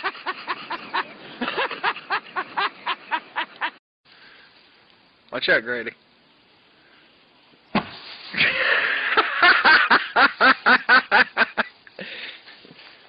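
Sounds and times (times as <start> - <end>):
person laughing hard: 0.0 - 3.8, 8.4 - 11.7.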